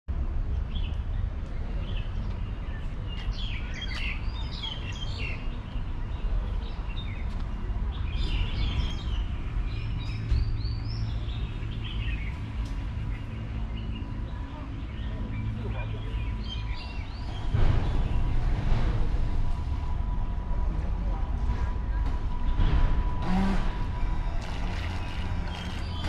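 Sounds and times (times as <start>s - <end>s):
birds chirping and calling: 0.8s - 18.8s, 23.2s - 26.0s
low background rumble: 3.7s - 26.0s.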